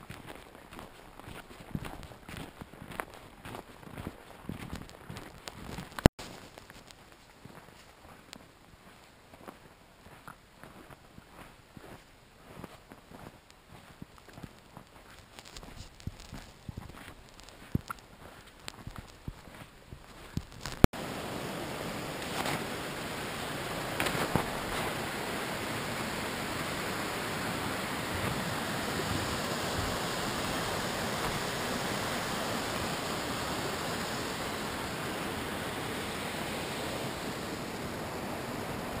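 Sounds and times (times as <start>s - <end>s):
stream rushing over boulders: 14.4s - 39.0s.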